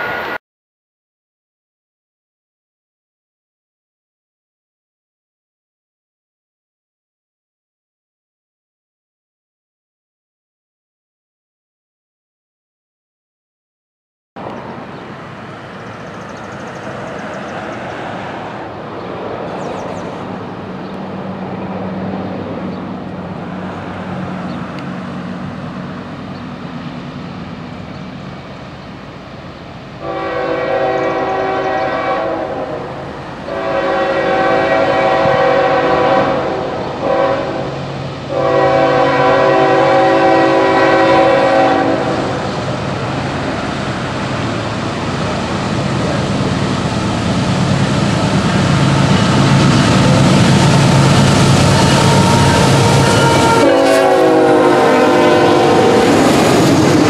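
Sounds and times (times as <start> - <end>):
diesel train engine rumble: 14.4 - 57.0
train air horn: 30.0 - 42.5, 50.6 - 56.2.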